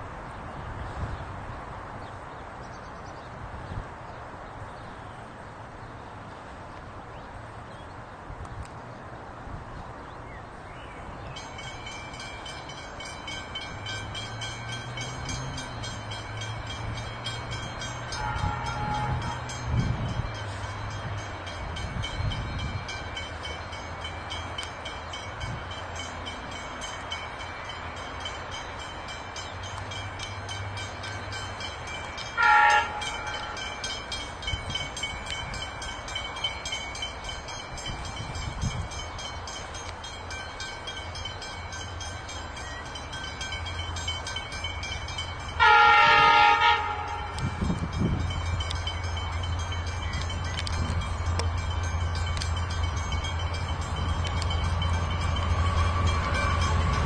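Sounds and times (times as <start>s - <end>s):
locomotive engine hum: 0.0s - 57.0s
steady high ringing: 11.4s - 57.0s
train horn blast: 18.0s - 20.2s, 32.2s - 33.8s, 45.5s - 48.0s.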